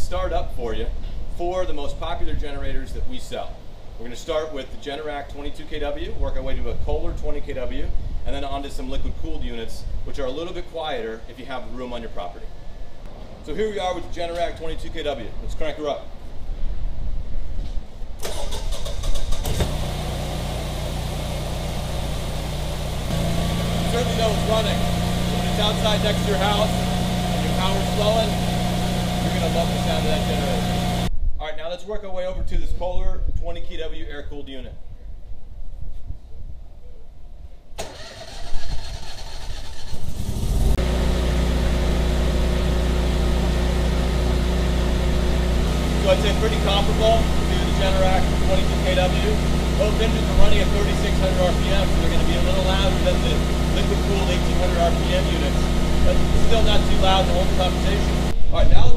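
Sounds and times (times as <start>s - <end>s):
generator engine running: 18.2s - 31.1s, 37.8s - 58.4s
generator starter cranking: 18.2s - 31.1s, 37.8s - 58.4s.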